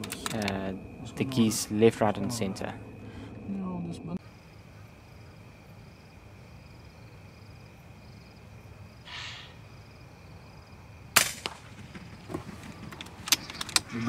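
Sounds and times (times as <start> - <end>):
faint hiss: 9.0 - 9.7
air rifle shot: 11.2 - 11.9.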